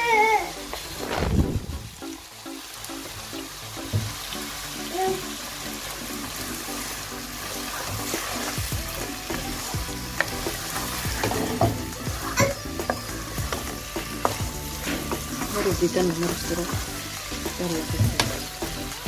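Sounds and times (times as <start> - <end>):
food sizzling in a frying pan: 0.0 - 19.0
spatula scraping a pan: 7.4 - 17.4.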